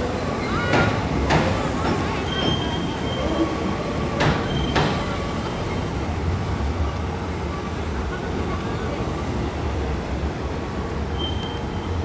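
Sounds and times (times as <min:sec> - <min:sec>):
train rumbling over steel bridge: 0:00.0 - 0:12.0
high wheel squeal: 0:01.8 - 0:03.6, 0:11.1 - 0:12.0.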